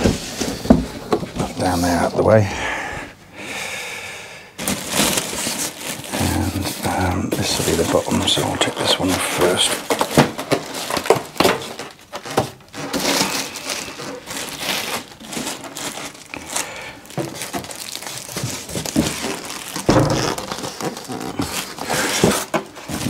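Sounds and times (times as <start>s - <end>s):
plastic bag crinkling: 4.6s - 23.0s.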